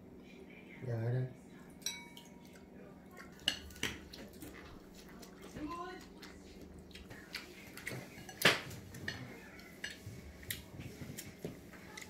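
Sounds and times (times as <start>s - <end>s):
dishes and utensils clinking: 1.8s - 2.6s, 3.2s - 5.6s, 7.6s - 12.0s.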